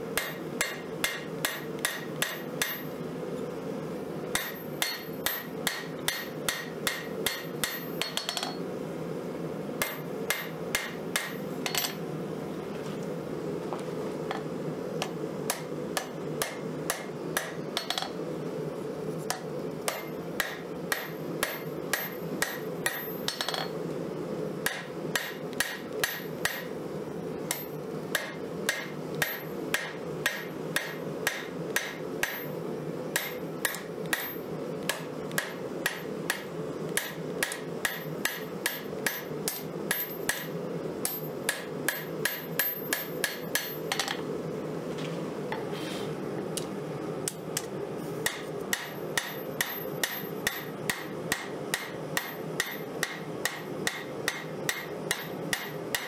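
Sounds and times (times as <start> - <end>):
hammer striking hot metal on anvil: 0.2 - 2.9, 4.4 - 8.6, 9.8 - 12.0, 15.0 - 18.2, 19.9 - 23.8, 24.6 - 26.7, 27.5 - 32.5, 33.2 - 44.2, 48.2 - 56.0.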